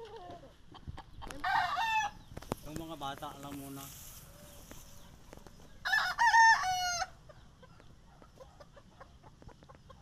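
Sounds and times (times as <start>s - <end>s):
rooster crowing: 1.4s - 2.2s, 5.8s - 7.2s.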